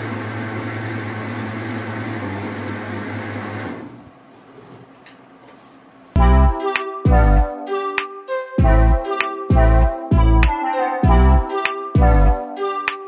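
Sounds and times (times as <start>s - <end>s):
loud background music: 6.2s - 13.0s.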